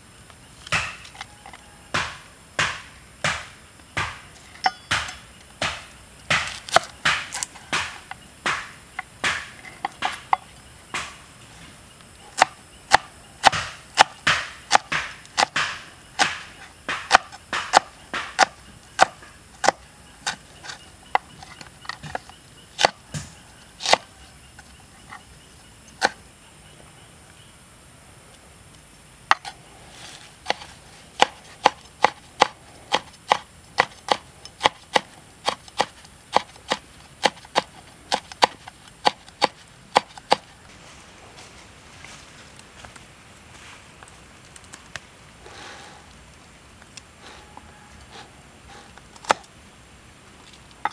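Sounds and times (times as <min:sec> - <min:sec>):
knife chopping on wooden board: 0:00.7 - 0:10.4, 0:11.0 - 0:11.2, 0:12.4 - 0:24.2, 0:30.4 - 0:40.5.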